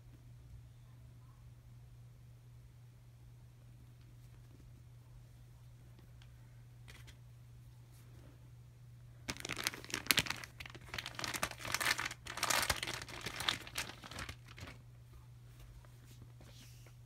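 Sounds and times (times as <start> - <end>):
plastic wrapping crinkling: 9.2 - 14.8.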